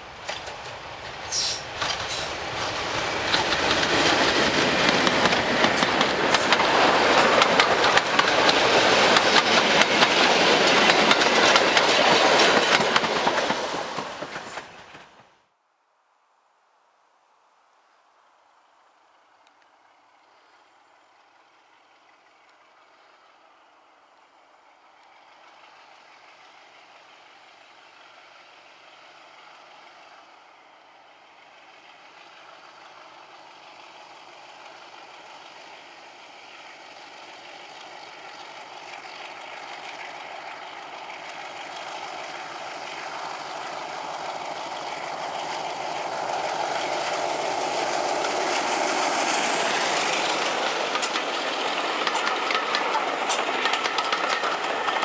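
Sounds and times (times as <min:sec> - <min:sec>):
train wheels clicking over rail joints: 0:00.0 - 0:15.3, 0:31.9 - 0:55.0
diesel locomotive engine: 0:00.0 - 0:15.6, 0:18.4 - 0:55.0.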